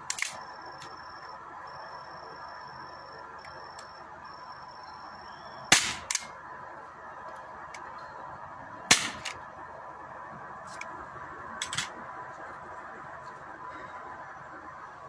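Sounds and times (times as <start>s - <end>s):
air pistol shots: 5.7s - 6.3s, 8.9s - 9.4s.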